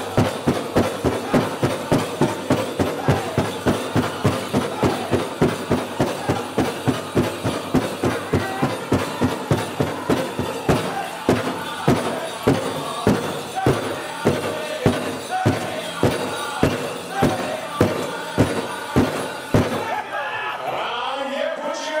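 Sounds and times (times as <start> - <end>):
big drum beating: 0.0 - 20.0
men singing high: 0.0 - 22.0.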